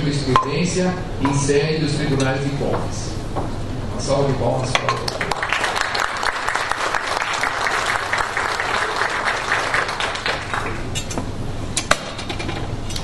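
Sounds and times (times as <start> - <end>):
audience applauding: 5.0 - 10.9.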